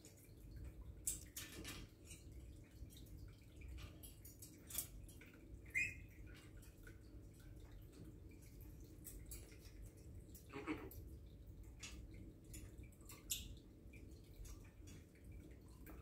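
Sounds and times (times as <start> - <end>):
parrot beak and feet tapping metal: 1.0 - 11.0
parrot squeak: 5.7 - 6.0.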